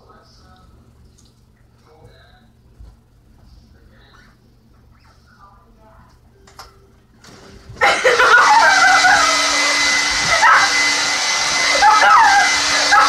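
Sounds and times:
hair dryer blowing: 7.3s - 13.0s.

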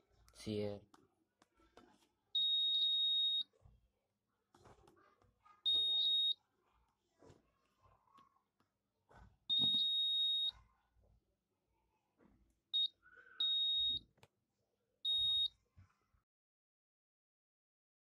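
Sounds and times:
high-pitched buzzer beeps: 2.4s - 3.4s, 5.7s - 6.4s, 9.5s - 10.5s, 12.8s - 14.0s, 15.1s - 15.5s.

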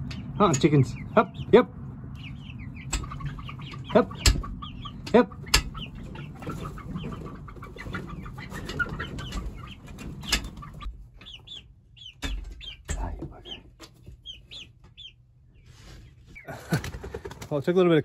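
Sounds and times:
chicks peeping and clucking: 0.0s - 18.0s
sharp knocks: 2.8s - 7.2s, 8.6s - 10.8s.

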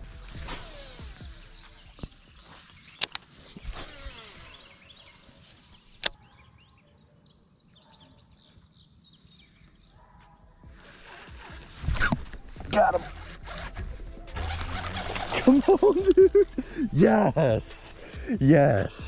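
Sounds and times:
steady high outdoor hiss: 0.0s - 6.1s, 8.3s - 19.0s
reel spool whine: 10.9s - 15.7s
fishing reel clicks: 11.9s - 15.8s.

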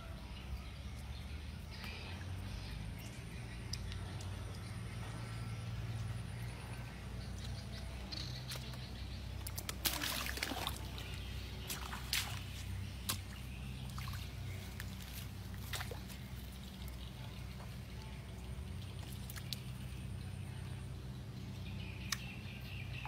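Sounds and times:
steady low hum: 0.0s - 23.0s
water sloshing and splashing: 8.4s - 20.0s.

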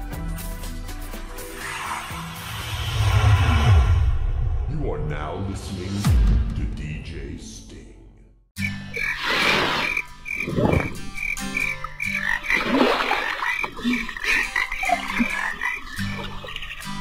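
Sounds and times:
frogs croaking: 8.6s - 17.0s
water splashing: 8.9s - 17.0s.

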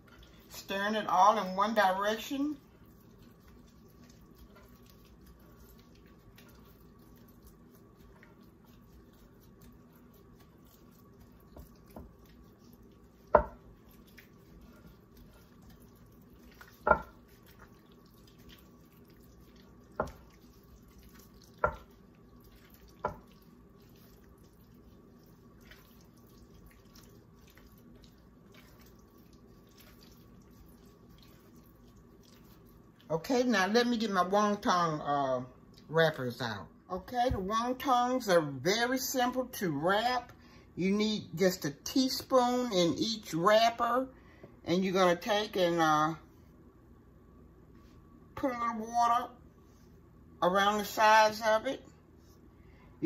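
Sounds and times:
filling stirred in glass bowl: 0.0s - 33.8s
glass bowl knocks: 16.9s - 17.1s.

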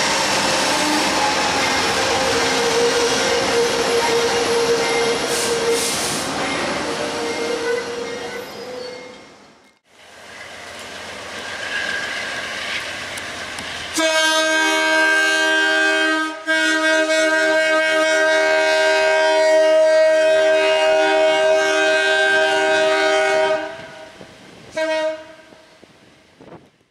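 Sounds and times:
train rumble: 0.0s - 16.0s
train horn: 0.6s - 6.0s, 13.9s - 25.7s.

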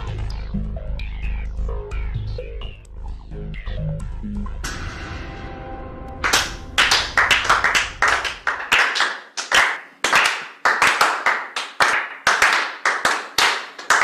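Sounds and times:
small audience applause: 6.2s - 14.0s.

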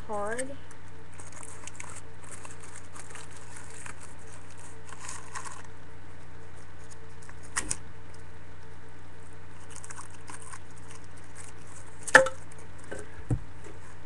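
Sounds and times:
steady low hum: 0.0s - 14.0s
tape and plastic crinkling: 0.2s - 5.7s, 6.5s - 7.8s, 9.6s - 13.0s.

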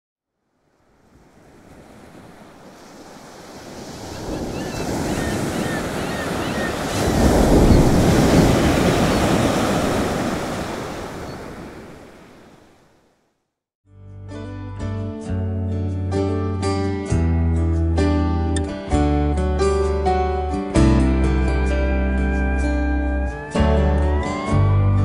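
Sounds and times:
ocean waves: 0.4s - 13.3s.

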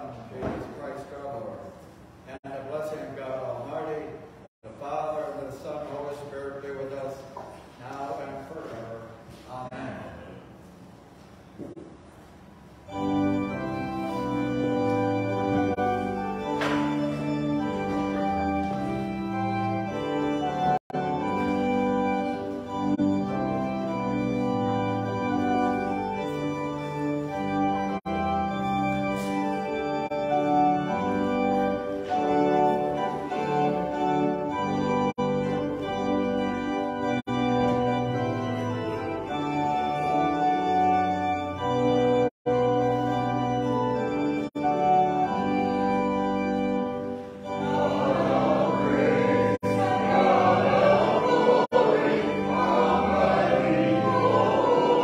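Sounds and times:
organ playing slow chords: 12.7s - 55.0s
voices singing: 47.5s - 55.0s.

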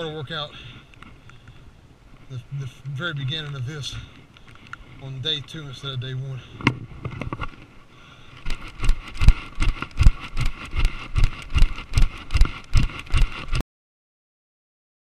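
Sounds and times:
camera jolting: 8.4s - 13.6s
running footsteps on pavement: 8.4s - 13.6s.

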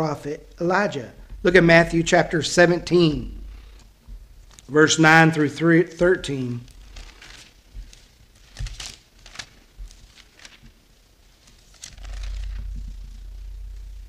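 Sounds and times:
low rumble: 0.4s - 4.5s, 12.0s - 14.0s
pages rustling and turning: 3.7s - 4.7s, 6.3s - 14.0s.

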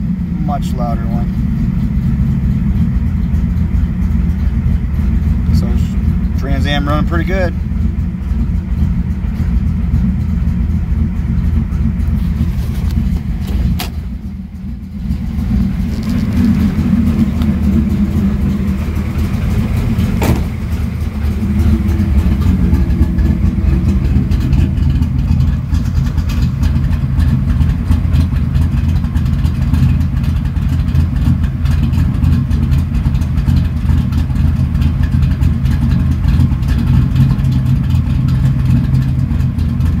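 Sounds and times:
car engine idling: 0.0s - 40.0s.

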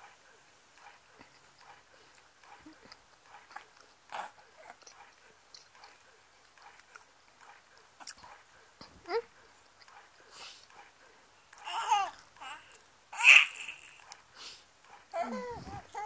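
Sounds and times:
baby grunting: 11.6s - 14.0s.

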